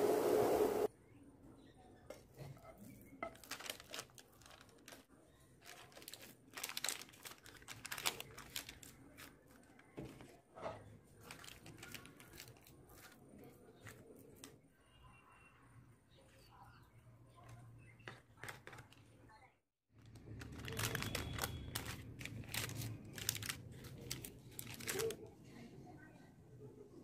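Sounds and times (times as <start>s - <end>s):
baking paper crinkling: 2.6s - 14.6s, 17.4s - 19.2s, 20.0s - 25.3s
spatula patting sticky mixture: 12.2s - 14.6s.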